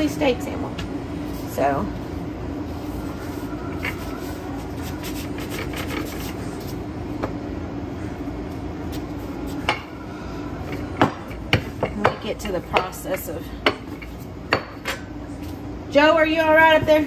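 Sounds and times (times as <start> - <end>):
steady mechanical hum: 0.0 - 17.0
rolling pin rubbing dough: 1.2 - 6.9.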